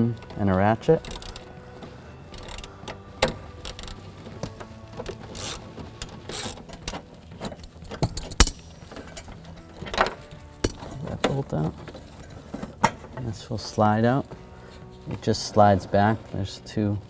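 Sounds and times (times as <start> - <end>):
hand ratchet clicking: 1.0 - 1.5, 2.3 - 4.0, 5.0 - 9.3.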